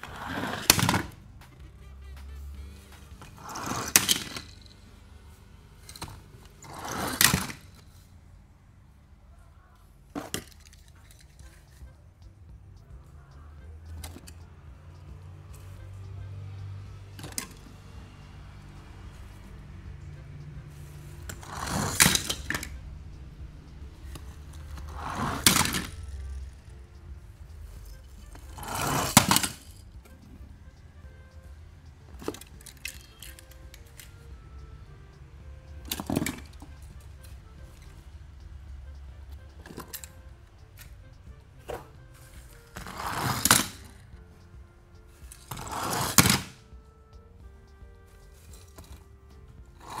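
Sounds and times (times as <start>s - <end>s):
toy cars clattering: 0.0s - 1.2s, 3.2s - 5.0s, 5.7s - 8.1s, 10.0s - 11.9s, 17.2s - 17.7s, 21.0s - 22.8s, 24.0s - 26.7s, 27.8s - 30.2s, 32.1s - 34.2s, 35.8s - 38.0s, 39.6s - 40.2s, 41.7s - 44.0s, 45.3s - 46.6s
toy cars rolling down ramp: 0.0s - 1.2s, 3.2s - 4.8s, 5.8s - 8.1s, 21.3s - 22.8s, 24.1s - 26.4s, 28.3s - 29.8s, 32.2s - 34.1s, 42.8s - 44.0s, 45.3s - 46.6s.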